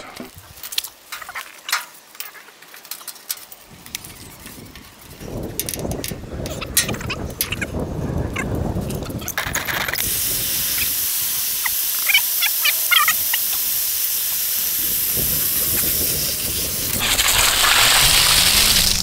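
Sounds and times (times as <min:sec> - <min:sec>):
water hissing from garden hose: 0:10.0 - 0:19.0.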